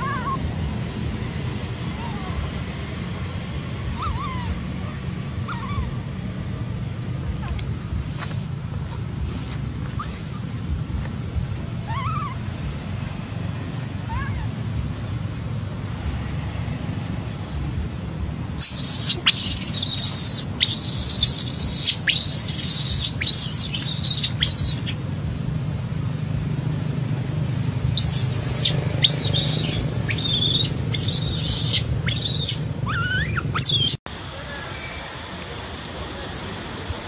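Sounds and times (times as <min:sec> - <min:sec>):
macaque screaming: 0:00.0 - 0:00.5, 0:01.9 - 0:02.8, 0:03.9 - 0:06.0, 0:11.8 - 0:12.4, 0:14.0 - 0:14.6, 0:18.6 - 0:25.0, 0:28.0 - 0:34.0.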